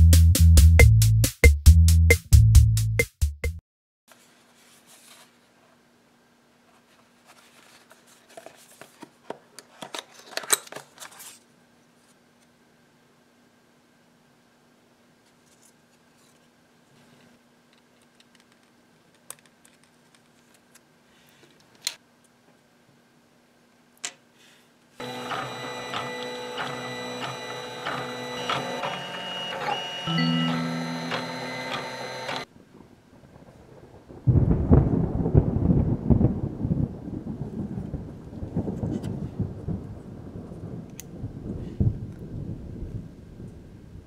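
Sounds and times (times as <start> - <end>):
stepper motors whining: 25.0 - 32.5.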